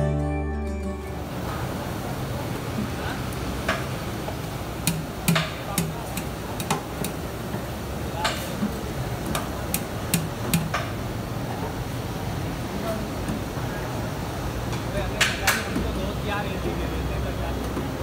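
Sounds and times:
steady background noise: 0:00.8 - 0:18.0
cooking utensils clicking and knocking: 0:02.8 - 0:11.0.

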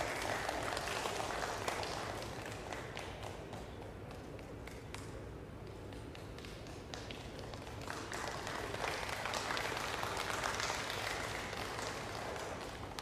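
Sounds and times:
audience applause: 0:00.0 - 0:03.8, 0:06.9 - 0:13.0.

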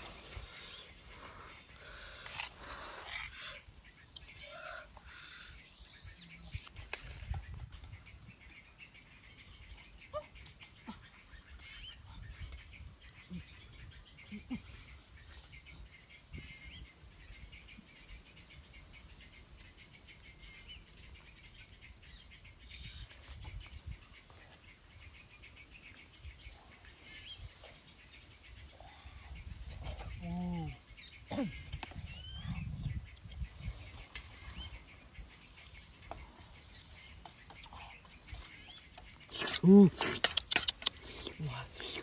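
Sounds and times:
branches and dry leaves rustling: 0:00.0 - 0:13.0, 0:30.8 - 0:41.8
birds chirping: 0:00.0 - 0:42.0.

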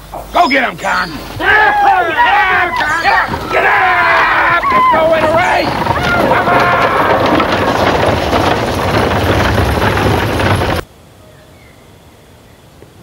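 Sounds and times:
coach rattling: 0:00.0 - 0:10.9
galloping hooves: 0:01.1 - 0:10.9.

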